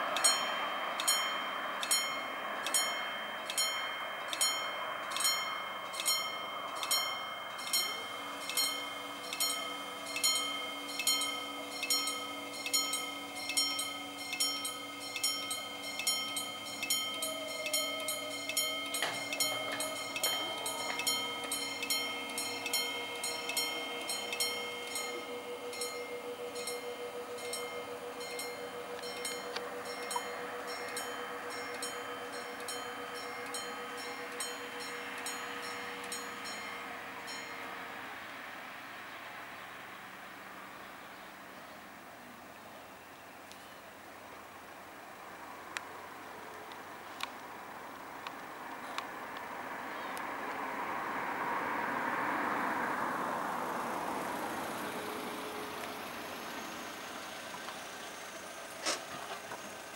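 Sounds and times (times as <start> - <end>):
barrier motor whine: 0.0 - 39.4, 52.6 - 59.9
steady hum: 0.0 - 39.4
level crossing warning bell: 0.0 - 41.6, 43.6 - 59.9.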